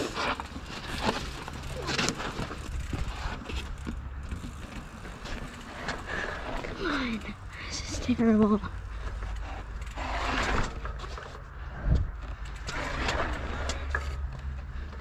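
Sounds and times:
tyres rolling over dirt and stones: 0.0s - 7.4s, 12.2s - 15.0s
bike knocking and rattling: 0.0s - 15.0s.

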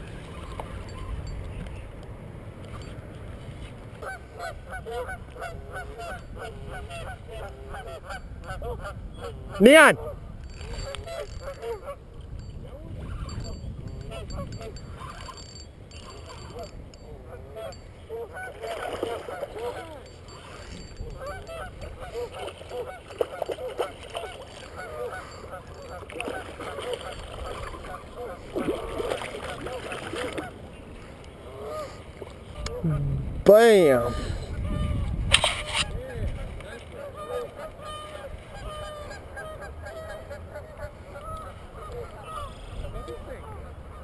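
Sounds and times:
low steady rumble: 32.6s - 33.5s.

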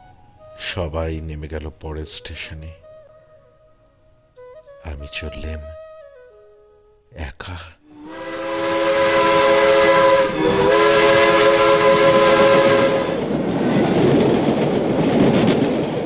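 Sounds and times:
train whistle chord: 0.0s - 1.4s, 7.9s - 13.4s
moving train running noise: 8.0s - 16.0s.

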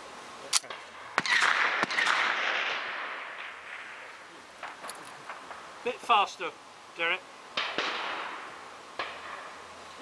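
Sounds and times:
gunshots: 0.6s - 5.6s, 7.6s - 9.5s
rapid burst of gunshots: 1.2s - 3.9s.

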